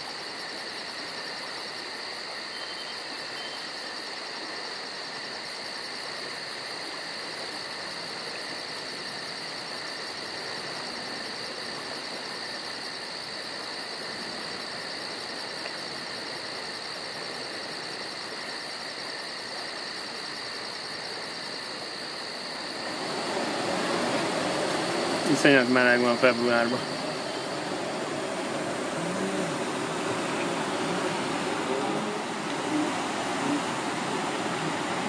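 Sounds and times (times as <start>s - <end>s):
insects chirping: 0.0s - 35.0s
steady hiss: 0.0s - 35.0s.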